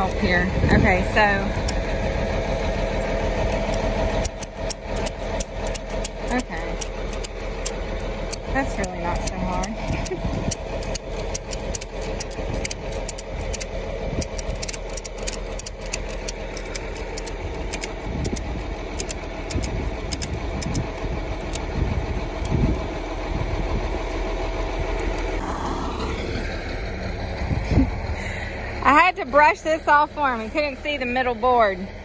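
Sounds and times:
engine idling: 0.0s - 32.0s
ratchet strap clicking: 3.4s - 22.9s.

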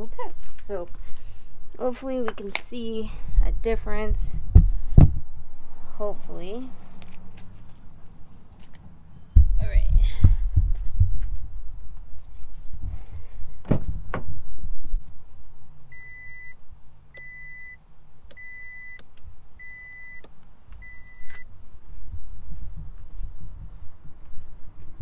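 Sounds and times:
car warning chime beeping: 15.9s - 21.5s.

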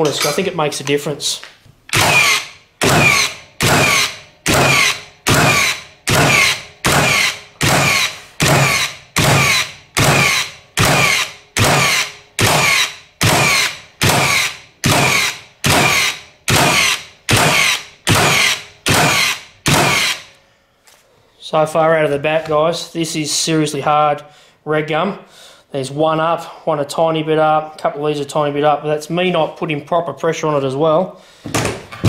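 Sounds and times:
nail gun firing into wood: 1.9s - 20.3s.

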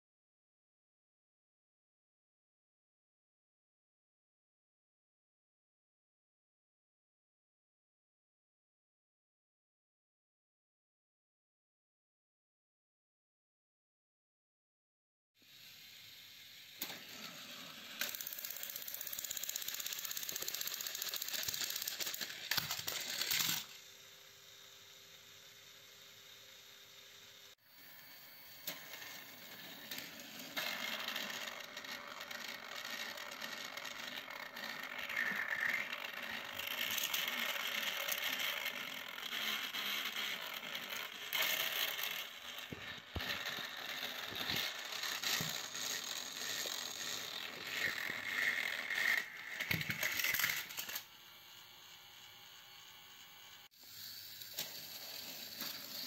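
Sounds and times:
toy train motors whirring: 15.4s - 56.0s.

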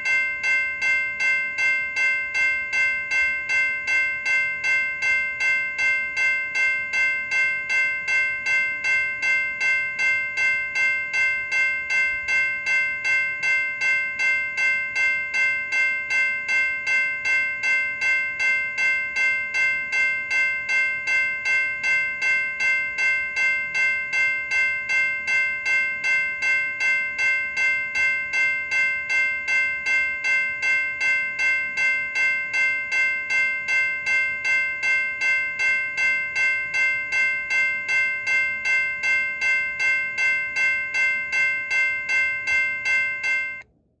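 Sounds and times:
railroad crossing bell ringing: 0.0s - 43.7s.

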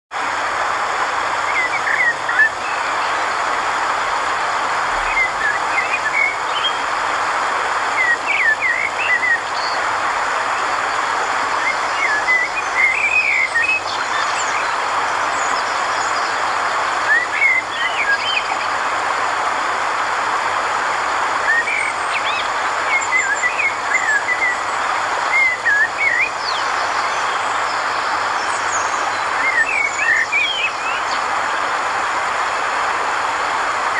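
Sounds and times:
steady rushing background noise: 0.2s - 33.9s
birds chirping: 1.3s - 3.7s, 4.8s - 7.0s, 7.9s - 18.9s, 21.3s - 32.0s.

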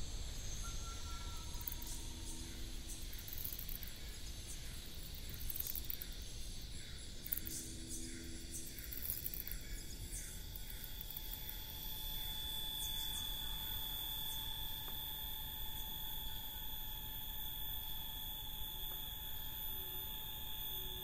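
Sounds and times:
high-pitched whining tones: 0.0s - 21.0s
insect short high chirps: 0.0s - 21.0s.

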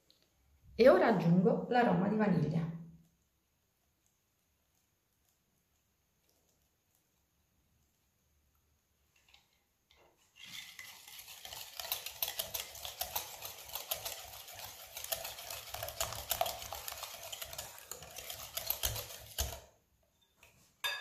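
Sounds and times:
liquid batter swishing: 3.1s - 20.8s
whisk clicking against glass bowl: 10.9s - 19.6s.

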